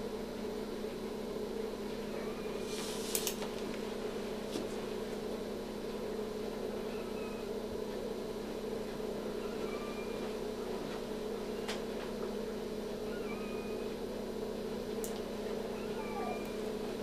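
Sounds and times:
equipment hum: 0:00.0 - 0:17.0
puppies squeaking: 0:09.4 - 0:10.3, 0:13.1 - 0:13.9, 0:15.7 - 0:16.6.

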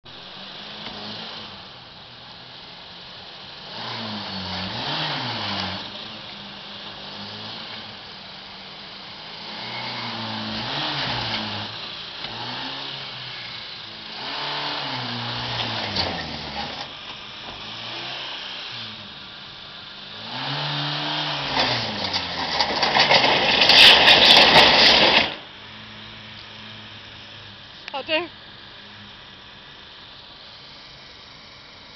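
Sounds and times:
engine revving hard: 0:03.6 - 0:06.1, 0:09.3 - 0:16.9, 0:17.6 - 0:19.0, 0:20.2 - 0:25.4.

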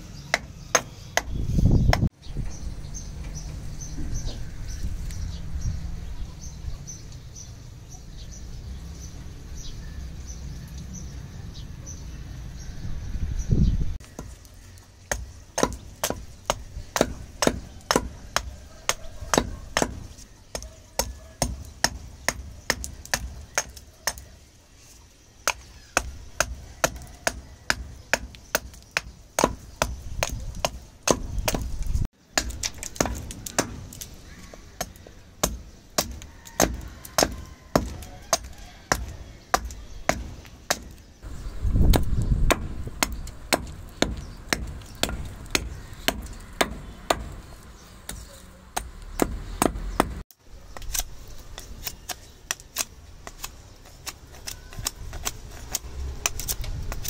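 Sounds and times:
hatchet chopping wood: 0:00.3 - 0:02.1, 0:15.0 - 0:24.3, 0:25.4 - 0:41.0, 0:41.7 - 0:57.0.

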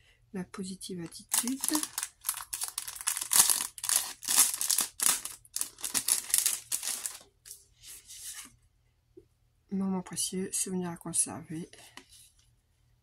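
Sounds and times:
plastic bag crinkling: 0:01.0 - 0:07.3.

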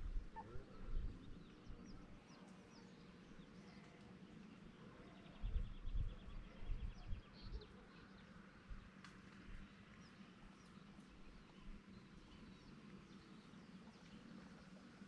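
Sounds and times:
wind buffeting microphone: 0:05.4 - 0:07.3.

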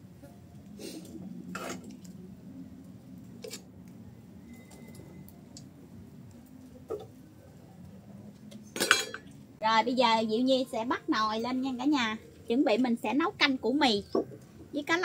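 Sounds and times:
cookware knocks and clinks: 0:08.8 - 0:09.3.

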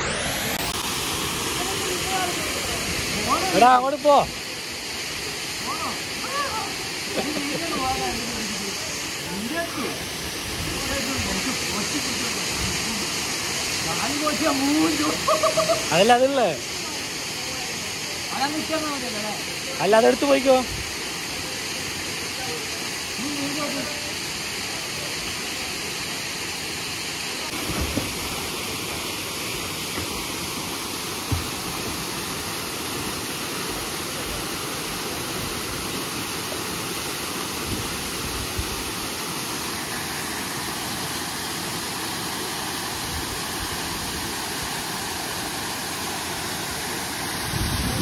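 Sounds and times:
waterfall rushing: 0:00.0 - 0:48.0.

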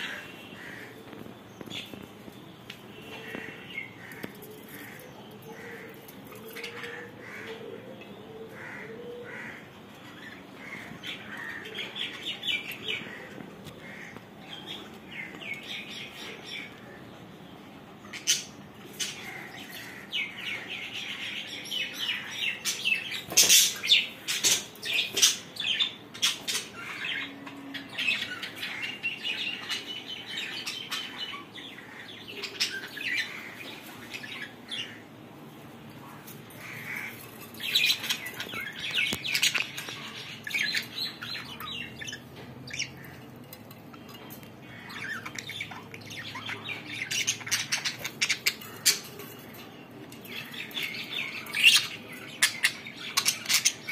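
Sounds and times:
budgerigars chirping and chattering: 0:18.0 - 0:35.1, 0:36.0 - 0:53.9.

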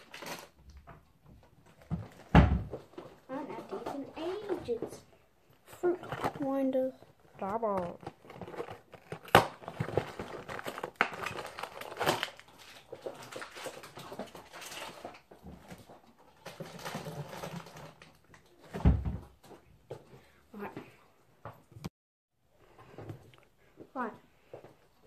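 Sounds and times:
cardboard box and wrappers rustling: 0:00.0 - 0:00.7, 0:01.6 - 0:19.4
cupboard door thump: 0:01.9 - 0:02.8, 0:18.8 - 0:19.3.

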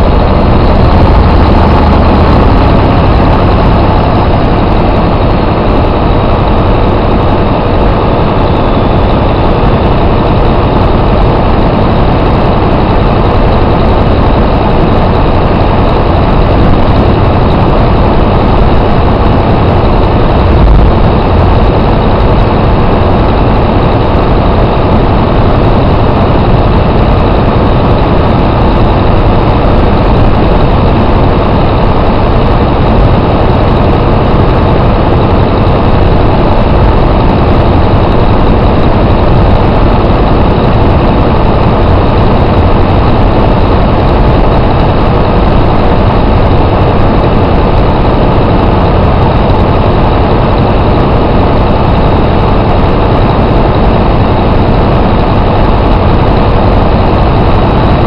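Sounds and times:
diesel engine running: 0:00.0 - 0:58.0.

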